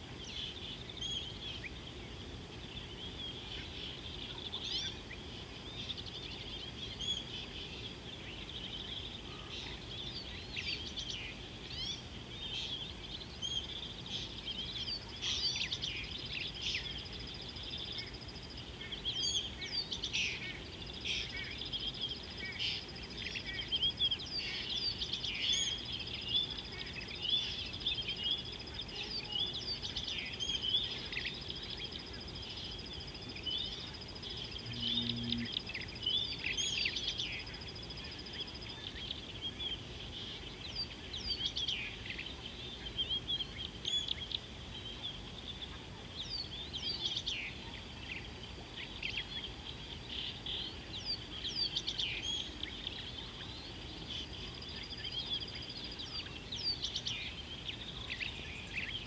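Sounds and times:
small birds chirping and whistling: 0.0s - 59.0s
thin steady high tone: 20.0s - 39.5s.

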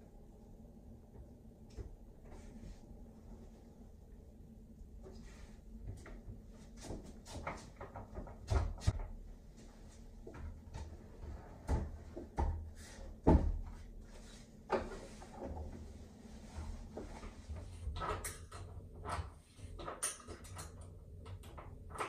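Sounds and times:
wooden doors knocking and clunking: 7.6s - 9.2s.

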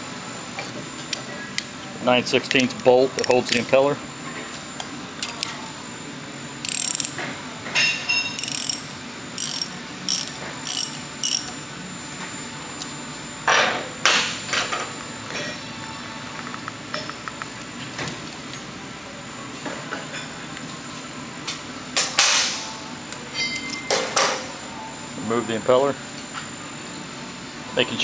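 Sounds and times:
socket ratchet wrench clicking: 2.6s - 3.7s, 6.6s - 7.2s, 8.4s - 11.6s.

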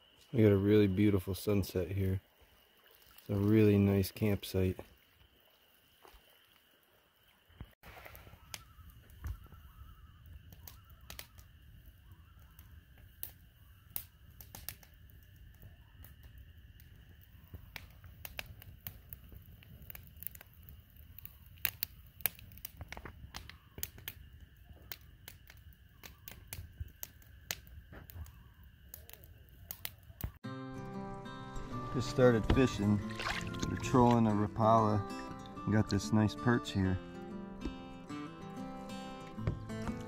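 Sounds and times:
campfire crackling and popping: 7.6s - 40.0s.

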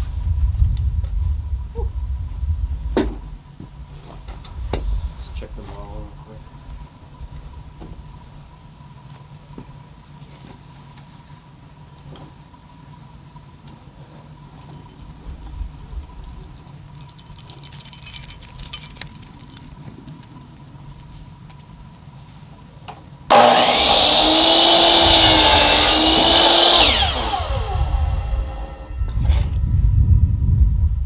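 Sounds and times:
handling knocks and clicks: 13.6s - 23.2s
miter saw cutting wood: 23.3s - 29.5s.

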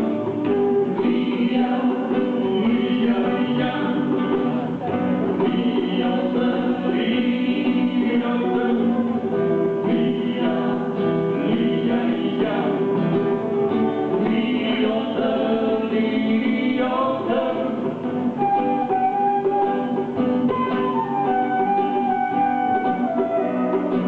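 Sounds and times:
hand drum: 0.0s - 24.0s
person singing: 0.0s - 24.0s
strummed acoustic guitar: 0.0s - 24.0s
flute: 12.9s - 14.9s, 18.1s - 24.0s.

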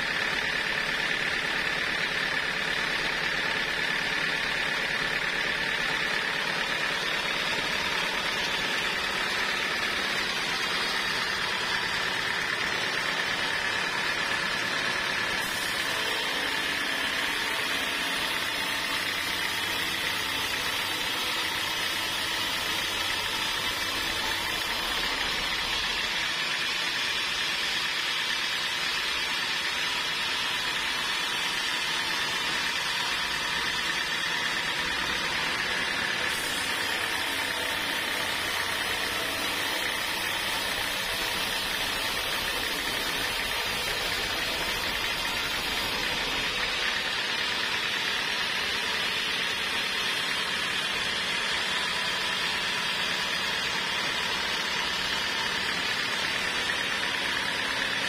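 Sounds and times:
band sawmill sawing log: 0.0s - 58.0s
high saw whine: 0.0s - 58.0s.

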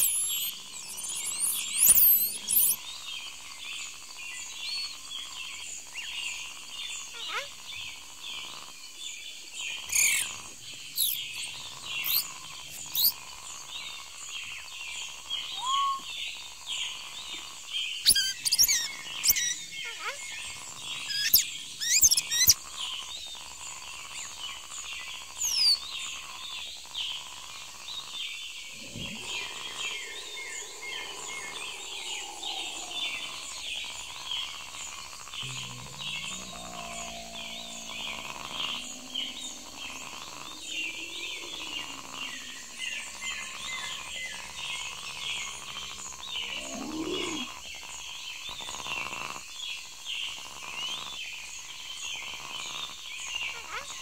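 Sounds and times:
birds whistling: 0.0s - 3.1s, 9.8s - 13.2s, 18.0s - 22.6s, 25.4s - 26.0s, 28.7s - 34.6s
insects chirping and buzzing: 0.0s - 54.0s.

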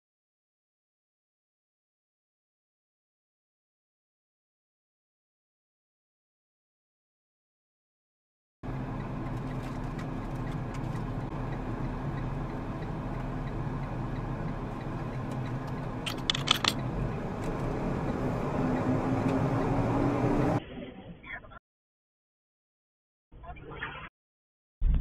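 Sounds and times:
truck diesel engine running: 8.6s - 20.6s
cluster of clicks: 15.2s - 16.8s.

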